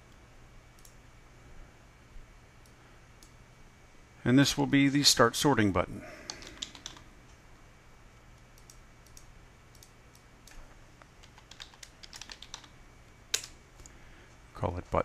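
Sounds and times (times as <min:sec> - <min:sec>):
typing on computer keyboard: 0:06.3 - 0:07.0, 0:11.2 - 0:12.7.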